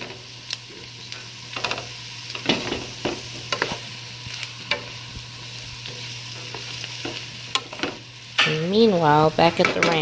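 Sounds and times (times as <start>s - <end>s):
vegetables sizzling in a skillet: 0.0s - 10.0s.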